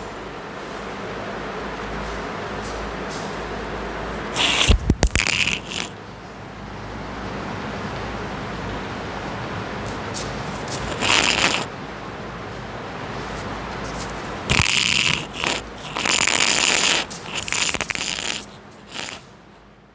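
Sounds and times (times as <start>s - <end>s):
steady hiss: 0.0s - 6.0s, 9.9s - 11.7s, 13.4s - 19.5s
chalk scratching on a blackboard: 10.6s - 11.7s, 13.9s - 19.2s.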